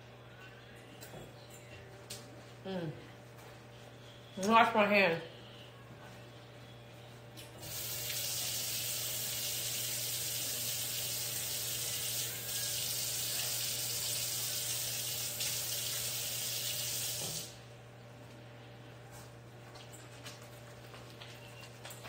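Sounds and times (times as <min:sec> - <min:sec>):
faucet water running: 0:07.6 - 0:17.6.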